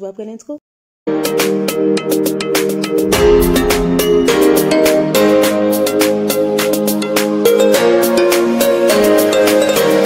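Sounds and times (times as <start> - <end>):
intro music with beat: 1.2 - 7.4.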